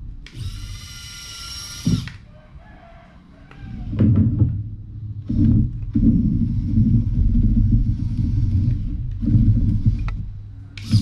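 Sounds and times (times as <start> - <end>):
low motor rumbling: 3.8 - 11.0
small electric motor whining: 10.8 - 11.0.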